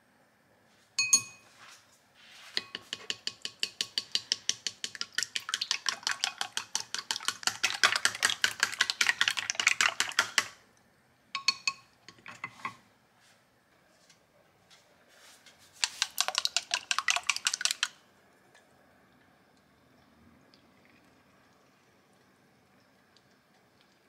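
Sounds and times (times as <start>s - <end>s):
ringing clink on glass: 1.0s - 1.5s
chopsticks beating eggs in glass bowl: 2.6s - 10.6s, 15.8s - 18.0s.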